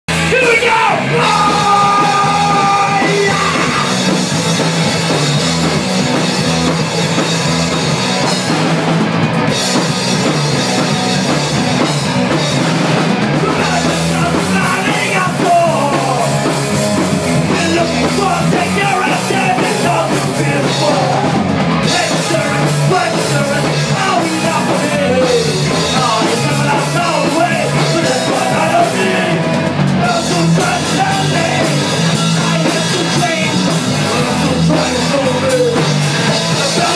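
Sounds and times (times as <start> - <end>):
punk rock band playing: 0.1 - 36.9
person singing: 0.3 - 4.0, 13.4 - 16.5, 17.5 - 36.0, 36.6 - 36.9.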